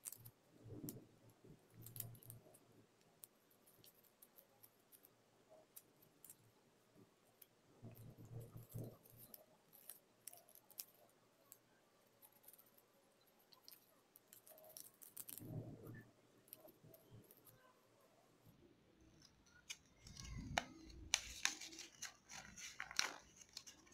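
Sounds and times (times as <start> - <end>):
paper crinkling and rustling: 19.5 - 23.9.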